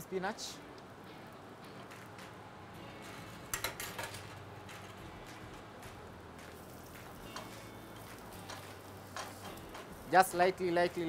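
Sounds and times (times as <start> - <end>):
spinach sizzling in butter: 6.6 - 11.0.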